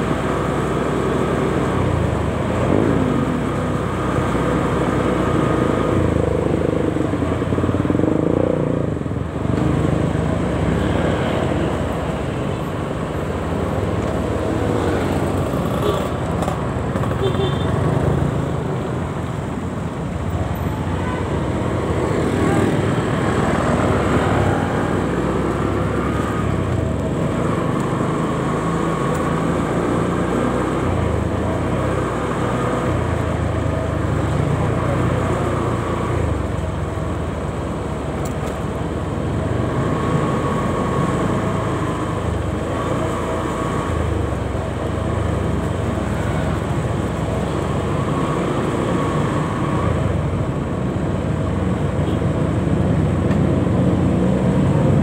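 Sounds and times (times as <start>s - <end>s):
motorcycle engine and tyre noise: 0.0s - 55.0s
traffic of motorcycles and cars: 0.0s - 55.0s.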